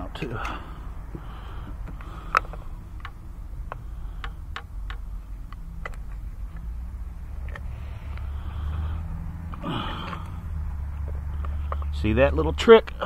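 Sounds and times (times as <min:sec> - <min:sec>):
steady low hum: 0:00.0 - 0:13.0
plastic parts clicking: 0:01.7 - 0:06.7.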